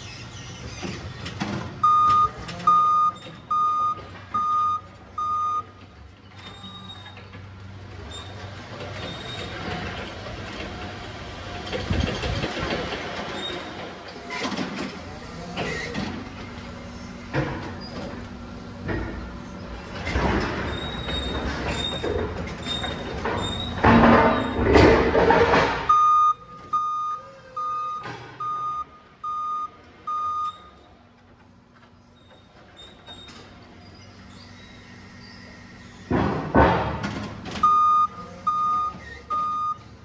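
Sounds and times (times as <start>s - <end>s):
forklift driving rumble: 0.0s - 40.0s
clunks and rattles: 0.2s - 6.2s, 7.0s - 26.8s, 27.8s - 28.7s, 36.0s - 38.0s
forklift reversing alarm beeping: 1.8s - 7.1s, 25.8s - 31.0s, 37.6s - 40.0s.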